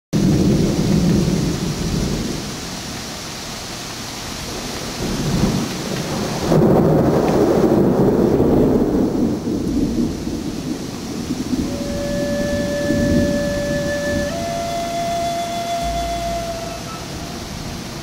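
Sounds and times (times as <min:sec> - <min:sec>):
wind buffeting microphone: 0:04.4 - 0:18.0.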